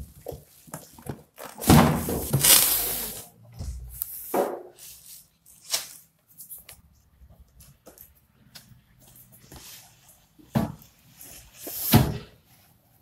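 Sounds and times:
plastic wrapping crinkling: 0.6s - 3.3s
cardboard scraping: 1.6s - 3.3s.

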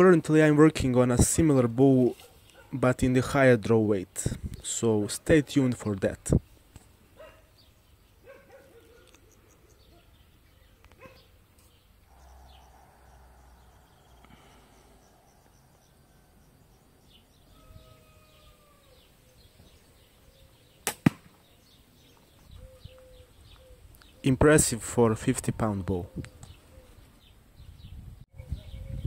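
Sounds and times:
faint bird chirps: 7.2s - 20.8s, 21.4s - 24.4s
arrow striking target: 20.8s - 21.4s
bowstring snap: 20.8s - 21.4s.

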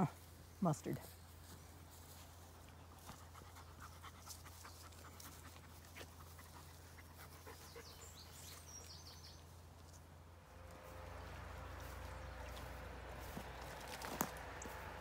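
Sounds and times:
dog panting: 2.6s - 8.7s.

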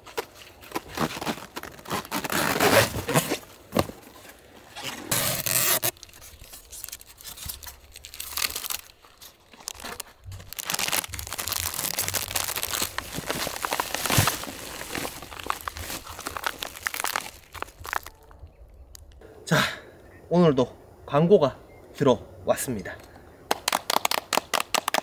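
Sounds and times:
plastic tearing: 0.1s - 3.4s, 4.8s - 18.2s
plastic packaging crinkling: 5.2s - 18.4s.

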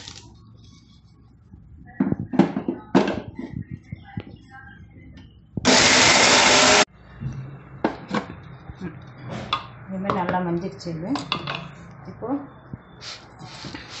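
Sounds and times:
mixer grinder grinding: 5.7s - 6.9s.

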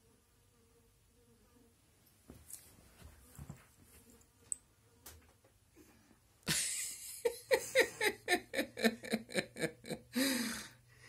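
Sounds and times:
person laughing: 6.5s - 10.7s.

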